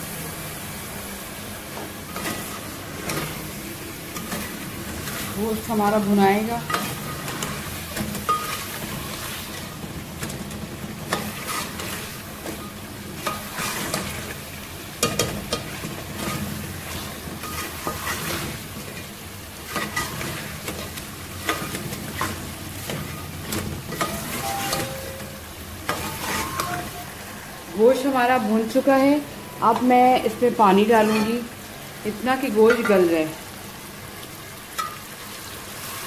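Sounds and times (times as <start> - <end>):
meat sizzling in oil: 0.0 - 36.0
spoon scraping a metal pot: 11.1 - 14.2, 19.7 - 27.1, 31.0 - 31.5.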